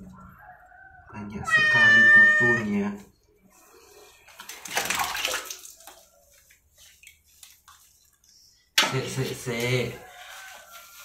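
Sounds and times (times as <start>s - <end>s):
water splashing and sloshing: 3.2s - 11.0s.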